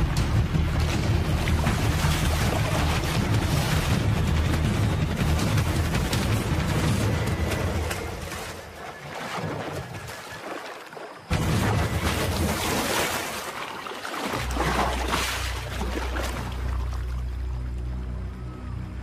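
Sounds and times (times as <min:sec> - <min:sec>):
churning water: 0:00.0 - 0:18.8
animal splashing into river: 0:00.7 - 0:17.2
low sustained music notes: 0:14.4 - 0:19.0.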